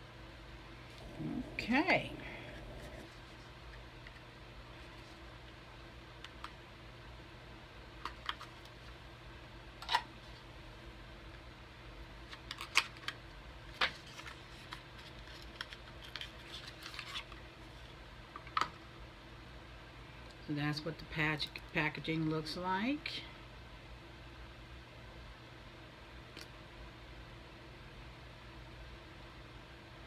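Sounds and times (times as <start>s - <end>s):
low room hum: 0.0s - 30.0s
packaging clicks and rustles: 12.3s - 17.4s.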